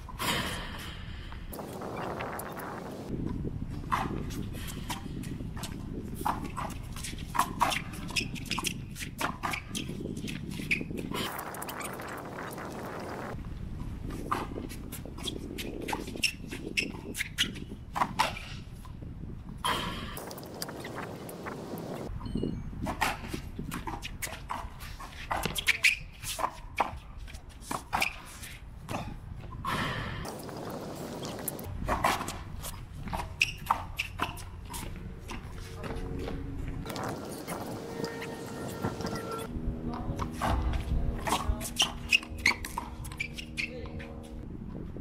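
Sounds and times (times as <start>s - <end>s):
sneakers squeaking on concrete: 3.7s - 12.1s, 14.1s - 18.9s, 19.7s - 39.5s, 40.2s - 44.4s
footsteps and shoe scuffs: 30.5s - 39.5s.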